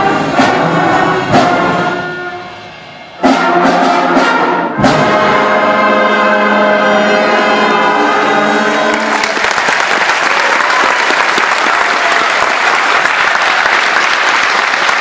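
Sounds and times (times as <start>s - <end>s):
concert band chord: 0.0s - 9.2s
audience clapping: 8.9s - 15.0s.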